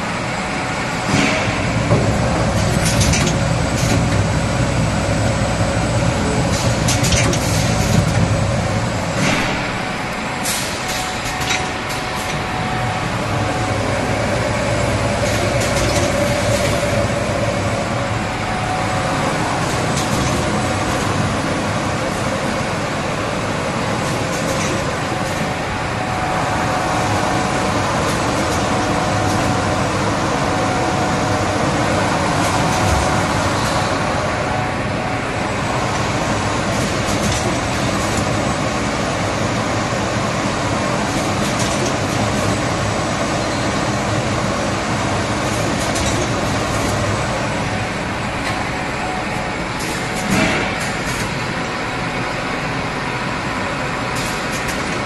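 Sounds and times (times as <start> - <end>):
printing machine running: 0.0 - 55.0
faint machine whine: 46.2 - 54.3.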